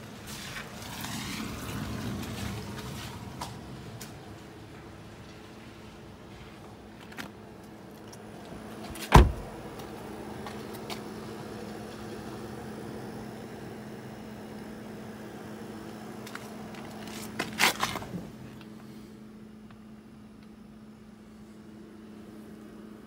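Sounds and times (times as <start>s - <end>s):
car door shutting: 8.8s - 9.6s.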